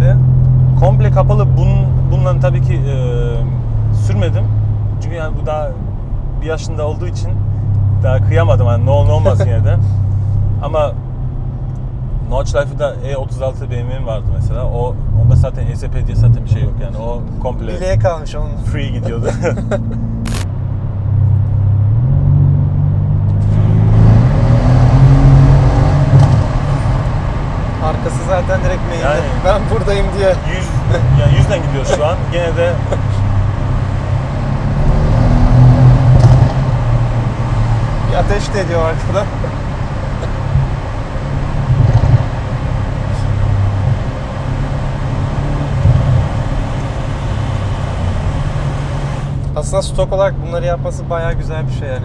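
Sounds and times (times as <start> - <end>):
car engine accelerating in tunnel: 13.5 - 52.0.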